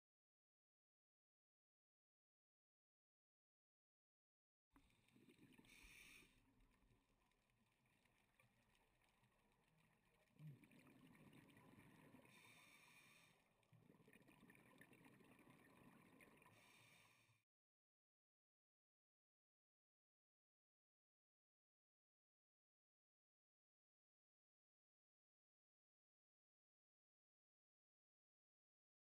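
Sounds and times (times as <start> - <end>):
exhaled bubbles rushing: 7.9 - 12.9, 13.7 - 16.8.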